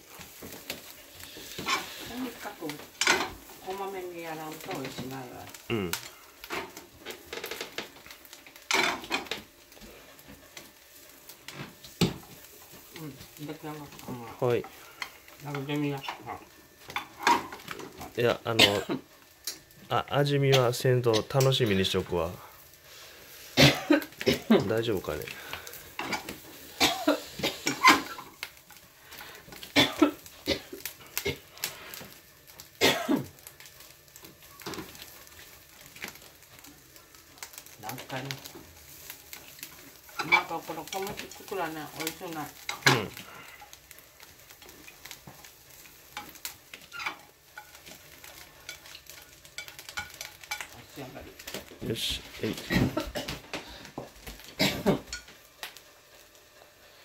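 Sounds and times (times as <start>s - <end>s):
utensil scraping a pan: 0.4s - 3.5s, 25.2s - 28.4s, 38.1s - 43.8s, 44.5s - 51.6s
person clearing throat: 5.7s - 6.0s, 18.6s - 19.0s, 23.6s - 24.6s, 29.8s - 31.4s, 32.8s - 33.3s, 52.7s - 53.4s, 54.6s - 55.1s
person coughing: 5.7s - 6.0s, 18.6s - 19.0s, 23.6s - 24.6s, 26.8s - 27.6s, 29.8s - 31.4s, 32.8s - 33.3s, 54.6s - 55.1s.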